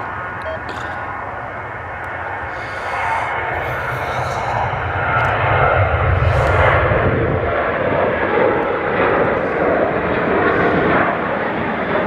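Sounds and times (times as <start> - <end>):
jet engines at takeoff: 0.0 - 12.0.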